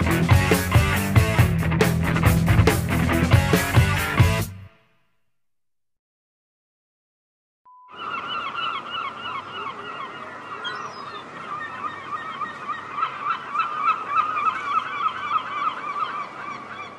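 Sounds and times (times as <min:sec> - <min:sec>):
brief beep: 0:07.7 - 0:08.0
flock of birds calling: 0:07.9 - 0:16.9.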